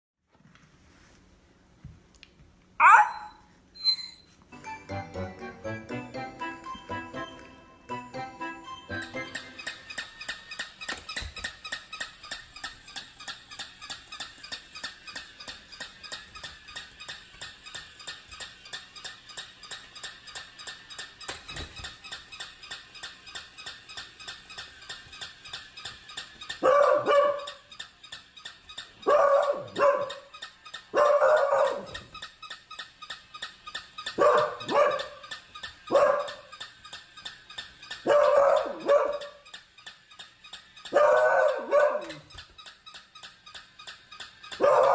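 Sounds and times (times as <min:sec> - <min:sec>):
dog barking: 0:02.8 - 0:03.4, 0:26.6 - 0:27.6, 0:29.0 - 0:30.3, 0:30.9 - 0:31.9, 0:34.2 - 0:35.2, 0:35.9 - 0:36.5, 0:38.0 - 0:39.4, 0:40.9 - 0:42.3, 0:44.6 - 0:44.9
toy motor clicking: 0:03.8 - 0:44.9.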